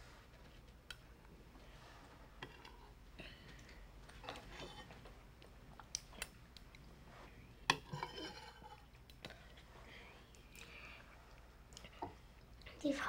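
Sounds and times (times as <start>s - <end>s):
soft eating sounds: 0.0s - 13.0s
cutlery and dishes clinking: 7.7s - 8.9s.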